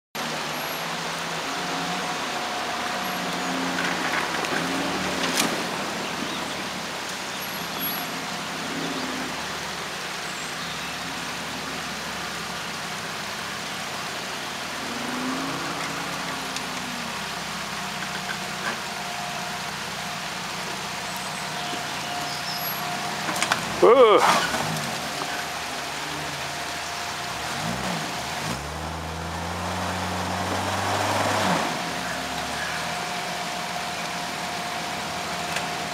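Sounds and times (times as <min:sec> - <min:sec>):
engine revving: 0:14.6 - 0:17.4, 0:21.0 - 0:35.9.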